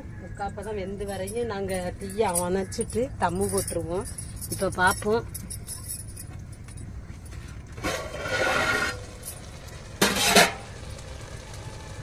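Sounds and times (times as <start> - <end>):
metal lid clanking: 10.0 - 10.6.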